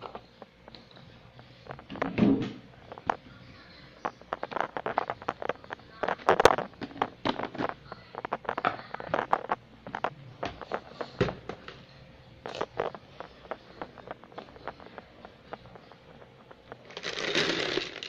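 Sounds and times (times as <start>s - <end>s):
plastic jar of cereal handled: 16.8s - 18.0s.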